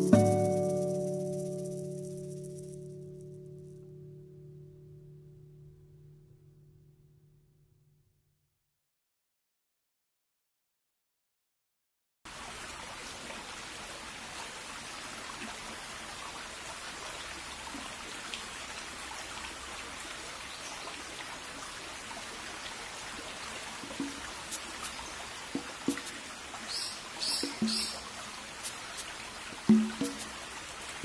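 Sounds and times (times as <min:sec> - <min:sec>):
steady rain hiss: 0:00.0 - 0:03.0, 0:12.3 - 0:31.0
sharp ticks: 0:24.0 - 0:25.0.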